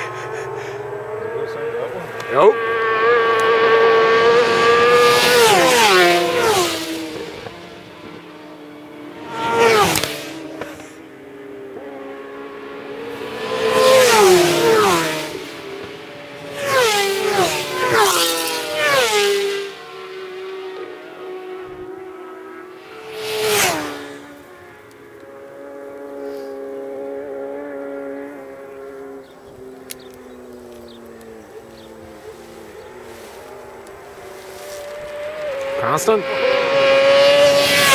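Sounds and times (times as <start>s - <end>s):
distant motorbike engines: 0.0s - 37.9s
motorbikes passing at speed: 0.0s - 37.9s.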